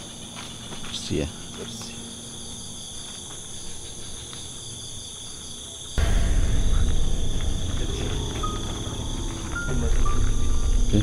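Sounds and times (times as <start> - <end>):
crickets chirring: 0.0 - 11.0
loud low rumbling: 6.0 - 11.0.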